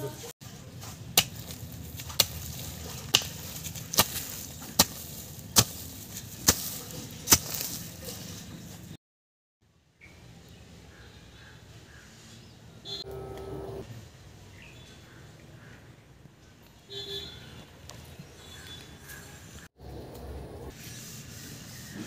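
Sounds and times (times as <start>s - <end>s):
hand hoe chopping into soil: 1.1s - 8.3s.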